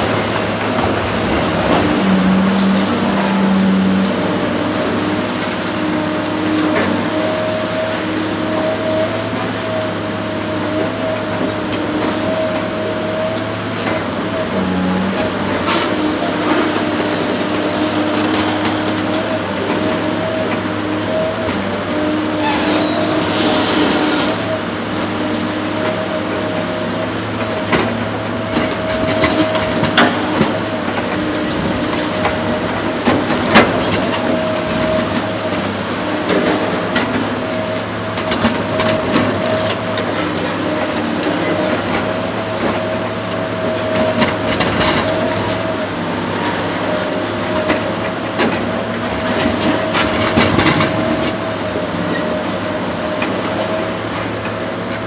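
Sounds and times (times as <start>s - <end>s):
diesel excavator running: 0.0s - 55.0s.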